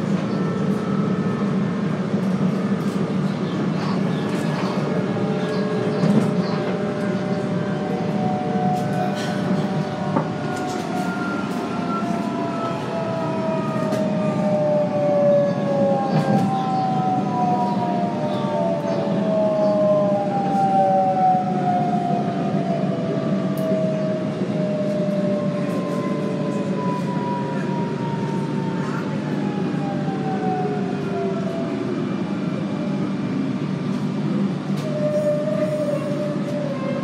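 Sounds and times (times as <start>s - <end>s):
wheels rumbling on rail: 0.0s - 37.0s.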